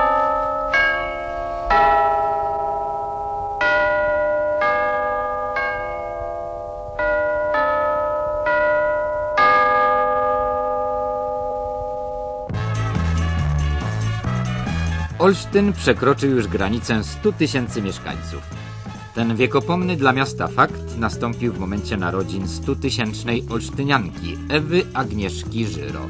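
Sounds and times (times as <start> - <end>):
slow bell chime melody: 0.0 - 12.6.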